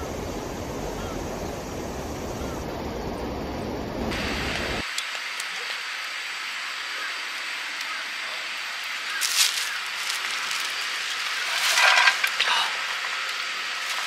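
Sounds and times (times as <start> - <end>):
steady outdoor hiss: 0.0 - 14.0
plastic bag rustling: 9.2 - 14.0.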